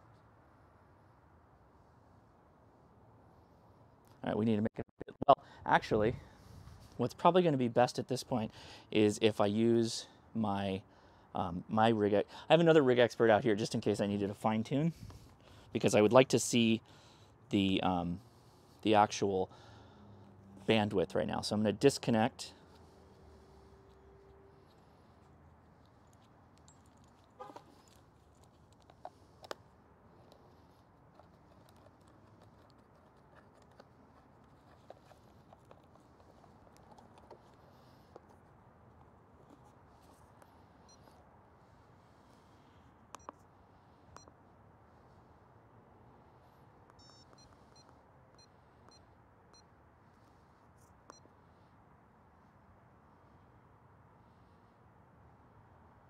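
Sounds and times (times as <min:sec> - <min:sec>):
faint clicks from handled gear: 0:22.6 - 0:41.2
short electronic key beeps: 0:47.0 - 0:48.5.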